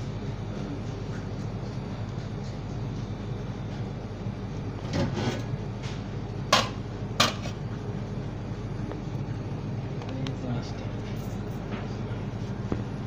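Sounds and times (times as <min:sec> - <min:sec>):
kitchen equipment hum: 0:00.0 - 0:13.0
utensil scrape: 0:04.9 - 0:05.5.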